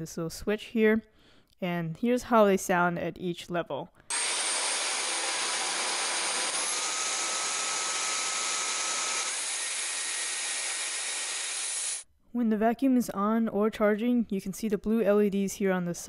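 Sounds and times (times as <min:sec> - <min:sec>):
vacuum cleaner motor whine: 0:04.1 - 0:12.0.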